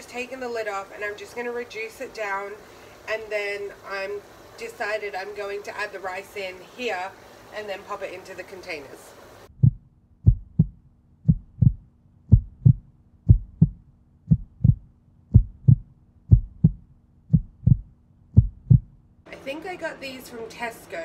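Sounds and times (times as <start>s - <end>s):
faint steady hum: 0.0s - 21.0s
paired low thumps: 9.5s - 19.2s.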